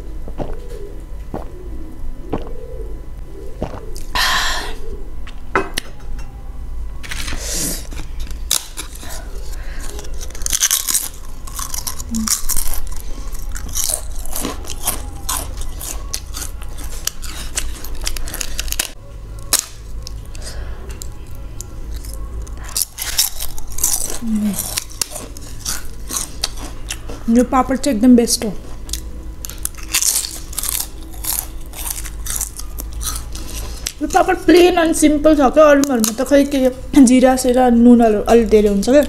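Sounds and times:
crisp crunching of wafer: 0:07.0 - 0:27.3, 0:28.8 - 0:34.4
chewing: 0:07.2 - 0:27.3, 0:28.7 - 0:34.1.

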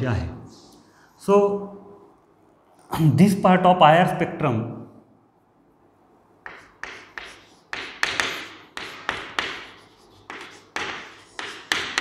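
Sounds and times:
chalk writing on a chalkboard: 0:06.4 - 0:12.0.

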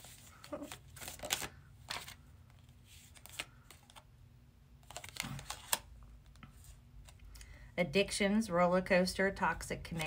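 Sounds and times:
cards clicking and snapping: 0:00.5 - 0:02.2, 0:04.8 - 0:07.4.

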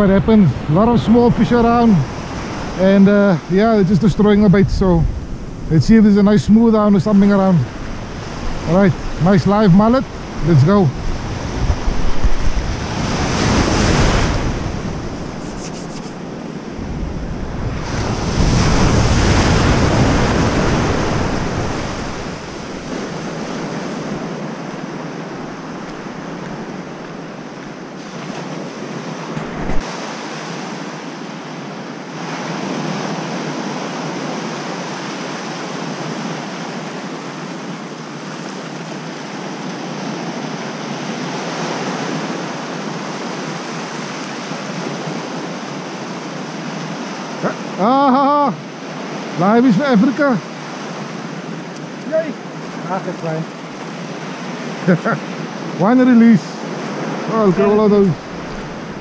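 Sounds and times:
surf breaking on beach: 0:00.0 - 0:27.2, 0:28.0 - 0:31.1
wind buffeting microphone: 0:03.7 - 0:15.6, 0:16.2 - 0:27.8, 0:28.4 - 0:30.0, 0:56.7 - 0:59.0.

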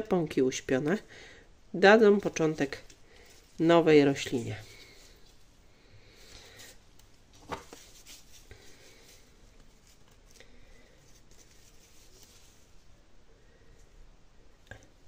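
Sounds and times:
faint rustling and handling: 0:02.0 - 0:15.0.

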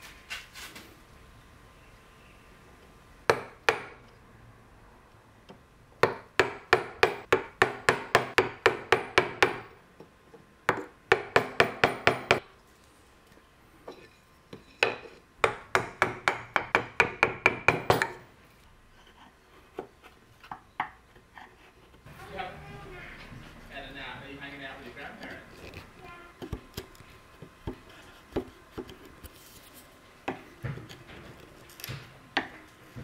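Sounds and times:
hammer tapping chisel into wood: 0:03.3 - 0:04.1, 0:05.5 - 0:10.1, 0:10.7 - 0:12.4, 0:14.8 - 0:18.2.

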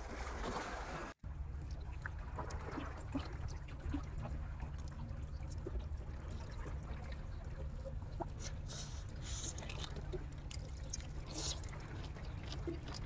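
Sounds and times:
wet clicks and drips: 0:01.6 - 0:13.0
wet chewing: 0:07.6 - 0:13.0.

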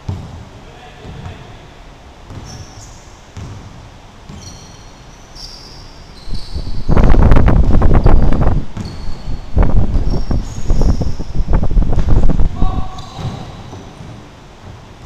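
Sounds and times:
basketball bouncing on wooden floor: 0:00.1 - 0:00.4, 0:02.3 - 0:02.6, 0:03.4 - 0:03.7, 0:08.7 - 0:09.2, 0:13.0 - 0:14.2
sneaker squeaks: 0:02.3 - 0:07.3, 0:08.4 - 0:12.2, 0:12.8 - 0:14.3
rushing noise on microphone: 0:06.2 - 0:15.0.

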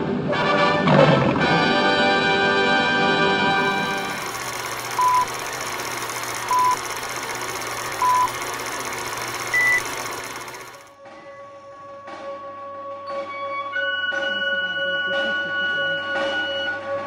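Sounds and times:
film projector clatter: 0:03.5 - 0:11.0
short countdown beeps: 0:06.5 - 0:06.8, 0:09.5 - 0:09.9.

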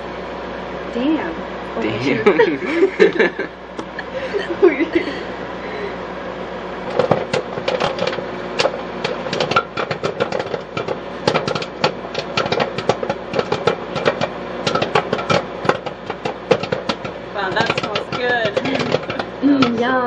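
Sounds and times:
microwave humming: 0:00.0 - 0:20.0
popcorn popping: 0:06.8 - 0:20.0.

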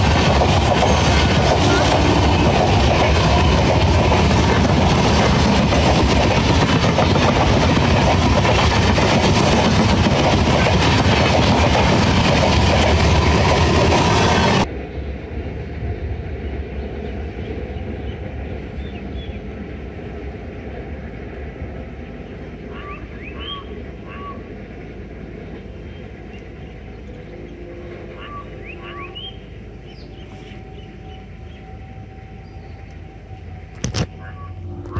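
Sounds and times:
train rumbling: 0:00.0 - 0:34.9
bird calling short rising notes: 0:34.0 - 0:34.9.

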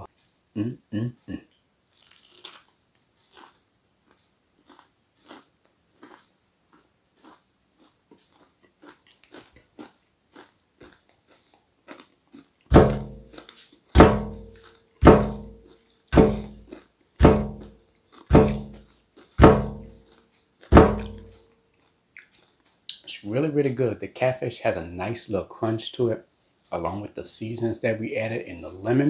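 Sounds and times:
faint chewing crunch: 0:01.1 - 0:23.2
heavy booming thumps: 0:12.7 - 0:13.3, 0:14.0 - 0:17.7, 0:18.3 - 0:18.8, 0:19.4 - 0:20.0, 0:20.7 - 0:21.4.

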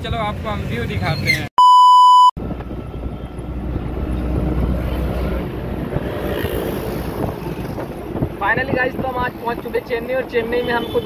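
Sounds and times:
vehicle road and engine noise: 0:00.0 - 0:01.5, 0:02.4 - 0:11.0
high test-tone beep: 0:01.6 - 0:02.3.

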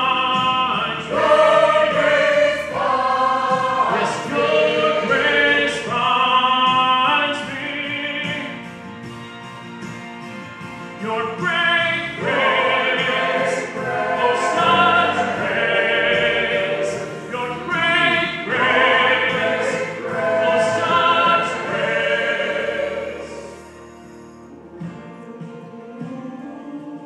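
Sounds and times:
church choir singing: 0:00.0 - 0:07.9, 0:11.6 - 0:27.0
man singing solo: 0:17.3 - 0:18.6.

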